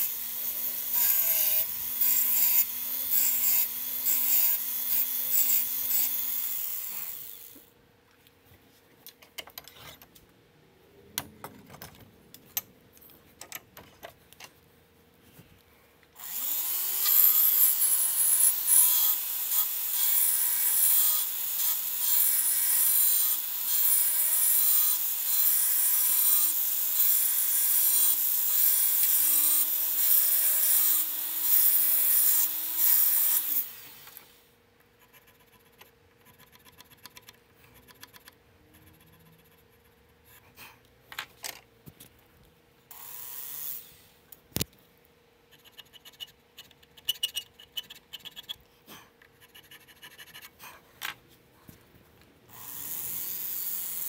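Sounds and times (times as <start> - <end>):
motorized cutter cutting wood: 0.0 - 7.7, 16.2 - 34.4, 52.5 - 54.0.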